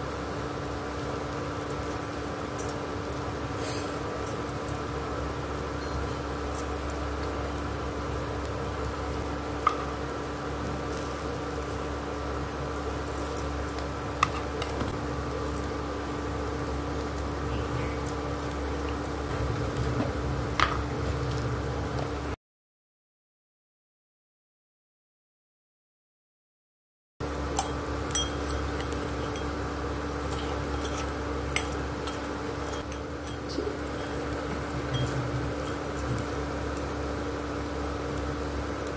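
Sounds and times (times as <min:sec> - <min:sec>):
background hum and hiss: 0:00.0 - 0:22.4, 0:27.2 - 0:38.9
spoon clinking on metal bowl: 0:27.6 - 0:29.6, 0:30.2 - 0:35.8
spoon tapping steel jar: 0:27.6 - 0:29.6, 0:34.9 - 0:35.2
spoon stirring wet mixture: 0:27.6 - 0:36.6.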